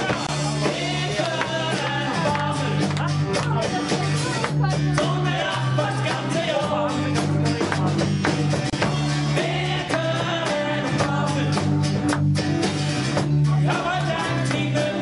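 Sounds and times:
man singing: 0.0 - 12.1, 13.4 - 15.0
bass line: 0.0 - 15.0
drums: 0.0 - 15.0
guitar: 0.0 - 15.0.

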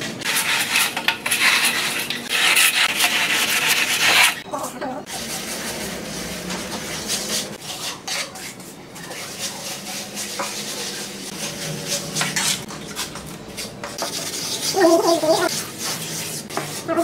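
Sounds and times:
trowel scraping wet mortar: 0.2 - 4.4.

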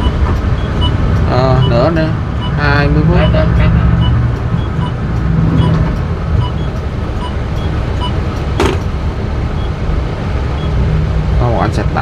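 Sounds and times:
bus engine and road rumble: 0.0 - 12.0
sharp knock: 8.6 - 8.9.

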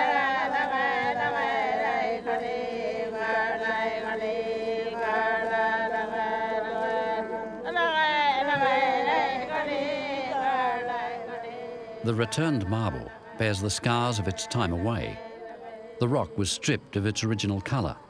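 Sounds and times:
voices chanting together: 0.0 - 18.0.

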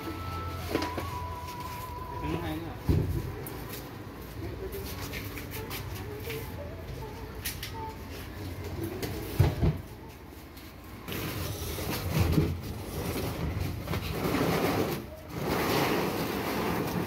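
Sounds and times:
tank scraping across floor: 11.1 - 17.0.

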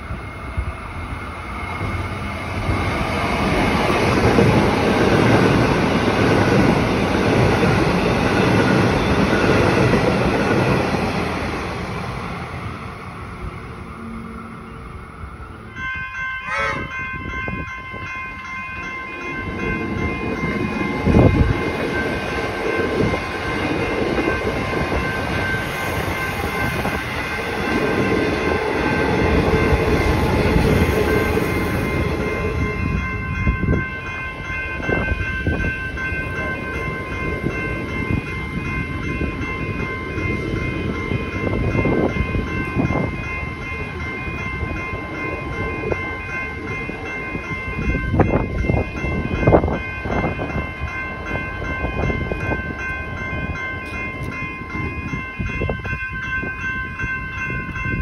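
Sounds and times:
electric train rumbling: 0.0 - 58.0
level crossing bells ringing: 14.0 - 58.0.

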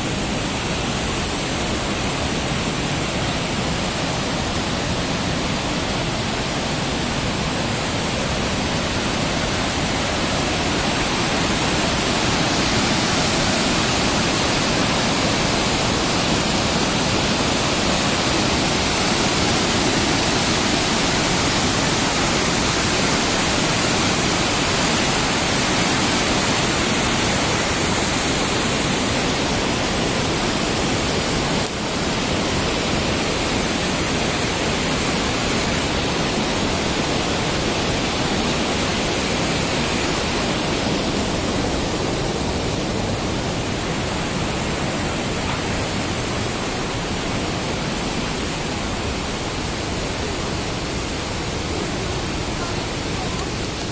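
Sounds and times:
waterfall roaring: 0.0 - 53.9.

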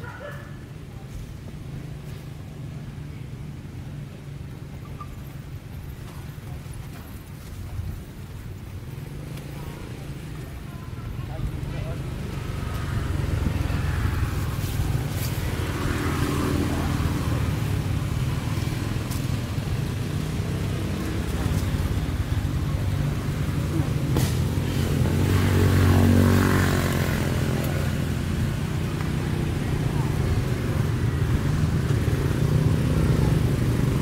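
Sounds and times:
motor traffic rumble: 0.0 - 34.0
vehicle passing: 8.9 - 34.0.

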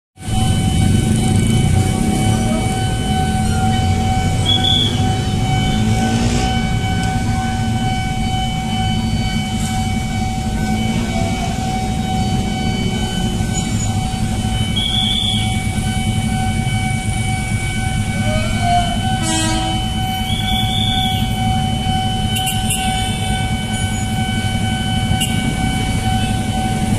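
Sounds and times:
low engine rumble: 0.2 - 19.1
high-pitched electronic tone: 0.2 - 26.9.

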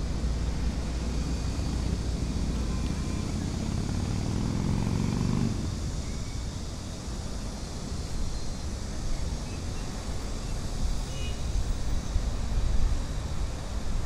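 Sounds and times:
city road traffic rumble: 0.0 - 14.0.

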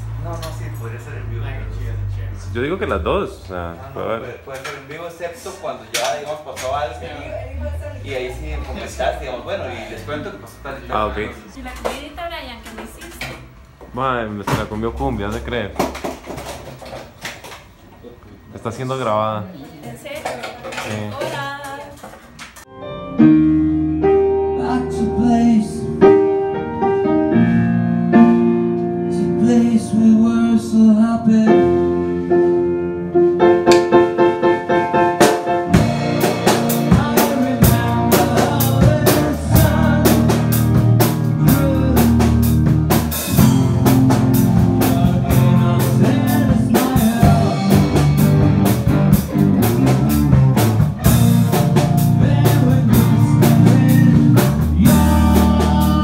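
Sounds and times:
rock band playing: 22.7 - 30.2, 31.3 - 56.0
drum kit: 31.4 - 56.0.

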